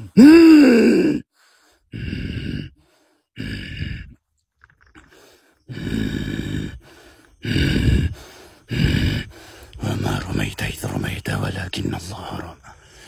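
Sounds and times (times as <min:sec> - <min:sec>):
man grunting breathily: 0:00.0 - 0:01.3, 0:01.9 - 0:02.8, 0:03.4 - 0:04.2, 0:05.7 - 0:09.8.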